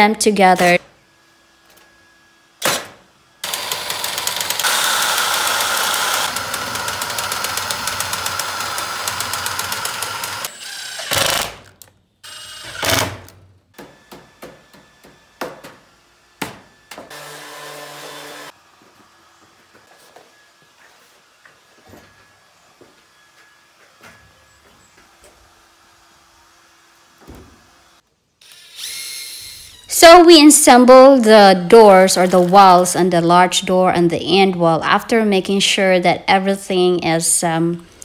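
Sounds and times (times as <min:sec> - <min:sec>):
nail gun shot: 0:02.6 - 0:03.7
rapid mechanical hammering: 0:02.6 - 0:11.7
tool motor whirring and clicking: 0:03.4 - 0:13.1, 0:28.4 - 0:29.9.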